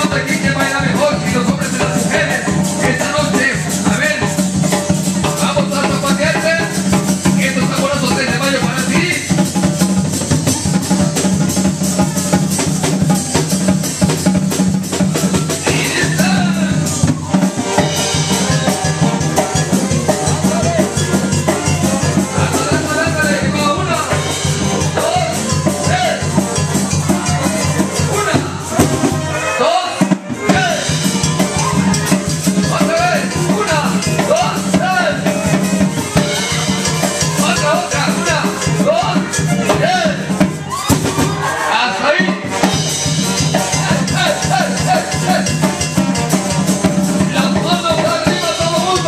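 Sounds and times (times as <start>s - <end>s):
loud dance music: 0.0s - 49.0s.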